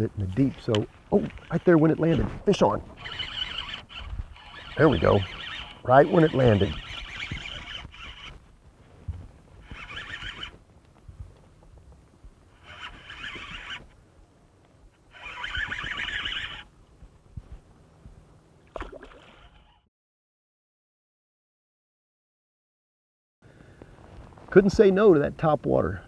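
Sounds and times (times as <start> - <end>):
fishing reel whirring: 1.3 - 8.4, 9.6 - 10.6, 12.5 - 13.9, 15.1 - 16.7, 18.8 - 19.9.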